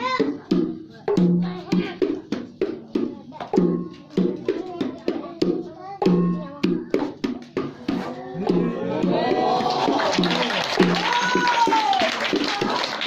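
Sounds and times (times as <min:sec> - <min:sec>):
rhythmic hand claps: 0:00.0 - 0:13.0.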